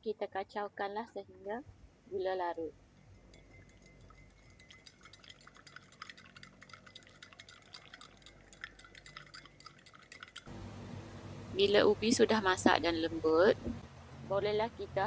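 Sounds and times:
spoon clinking against glass: 0:03.3 - 0:10.5.

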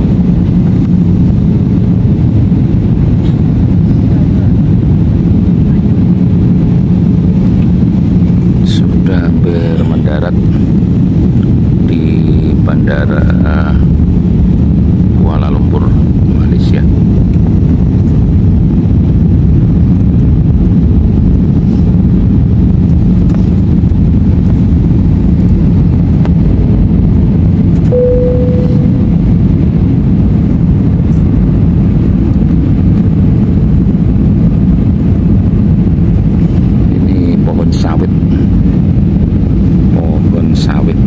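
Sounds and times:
airliner cabin engine noise: 0:00.0 - 0:41.0
short single tone: 0:27.9 - 0:29.1.

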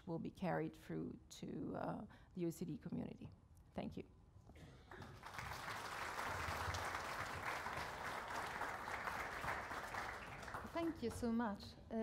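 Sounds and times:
audience applauding: 0:04.9 - 0:11.2.

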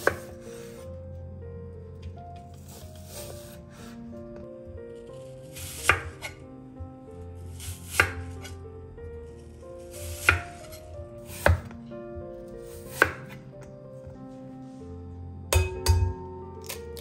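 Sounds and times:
knife cutting apple: 0:00.0 - 0:00.8, 0:05.2 - 0:06.4, 0:07.5 - 0:08.6, 0:09.8 - 0:11.8, 0:12.6 - 0:13.4, 0:16.6 - 0:17.0
soft background music: 0:00.0 - 0:17.0.

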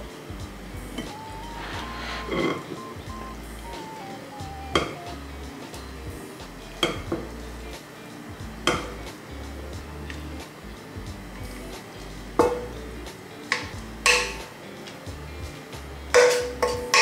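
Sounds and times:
background music: 0:00.0 - 0:17.0
pan and spatula knocking on bowl: 0:08.6 - 0:08.9, 0:12.4 - 0:12.7, 0:13.5 - 0:14.5, 0:16.2 - 0:17.0.

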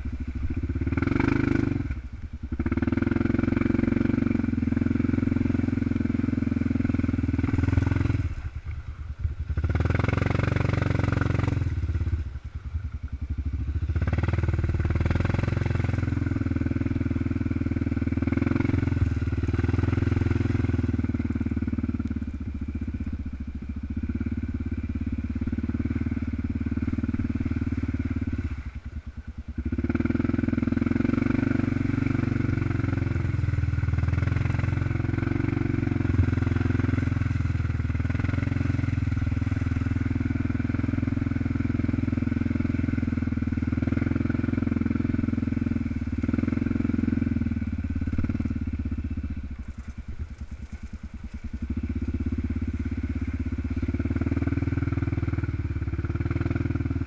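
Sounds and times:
atv engine running: 0:00.0 - 0:57.0.

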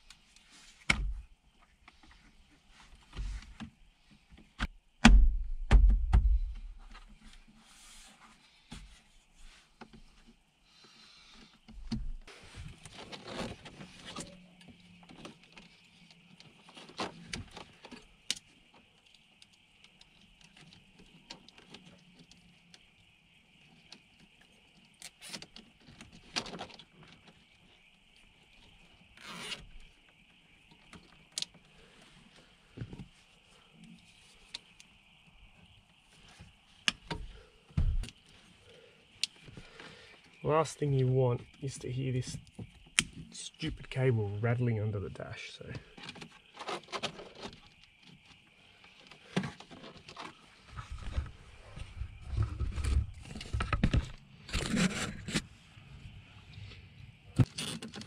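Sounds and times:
heavy thumps: 0:05.0 - 0:06.7.

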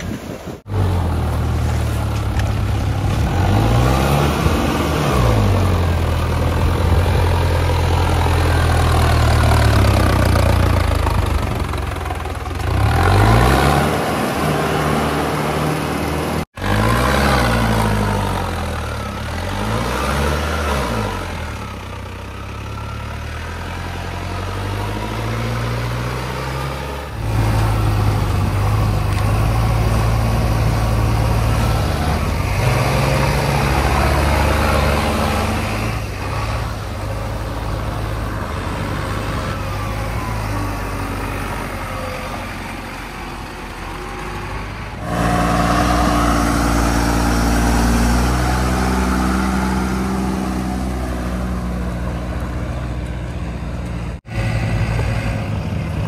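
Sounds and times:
backhoe loader engine: 0:00.0 - 0:56.0
dump truck pulling away: 0:00.0 - 0:56.0
tractor engine running: 0:00.0 - 0:56.0.

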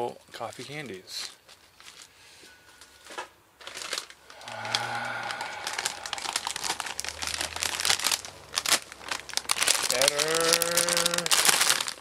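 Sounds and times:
plastic packaging crinkling: 0:03.6 - 0:04.2, 0:06.1 - 0:12.0.

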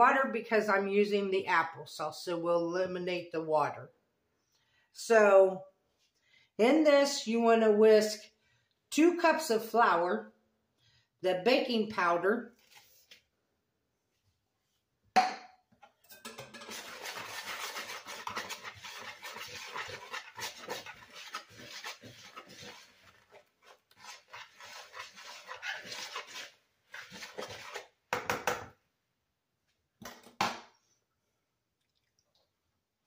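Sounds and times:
whisk clattering: 0:16.2 - 0:27.8
whisk scraping in plastic bowl: 0:16.4 - 0:28.0.

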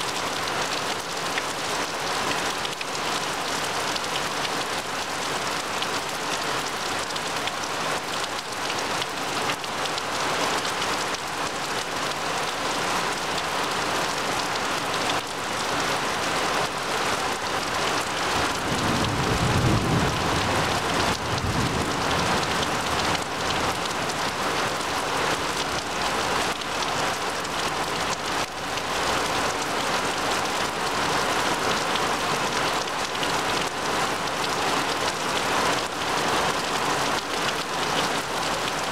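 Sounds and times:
rain falling on trees and grass: 0:00.0 - 0:38.9
low rumble of thunder: 0:18.6 - 0:23.4.

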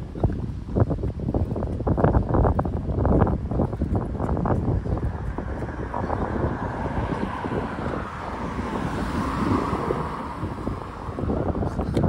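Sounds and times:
road traffic noise: 0:00.0 - 0:12.0
wind buffeting microphone: 0:00.0 - 0:12.0
car passing: 0:02.8 - 0:12.0.

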